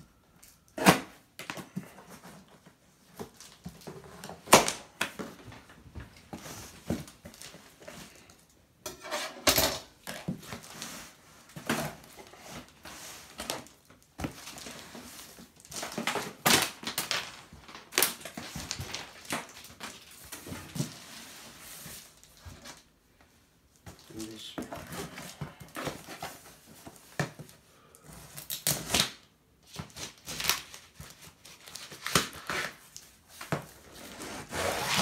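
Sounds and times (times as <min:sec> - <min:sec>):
cardboard scraping and rustling: 0:31.5 - 0:35.0
plastic strapping pulled and cut: 0:34.2 - 0:35.0.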